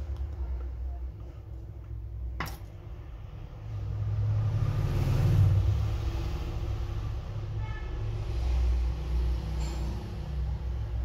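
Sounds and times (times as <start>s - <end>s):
passing vehicle engine rumble: 2.8s - 11.0s.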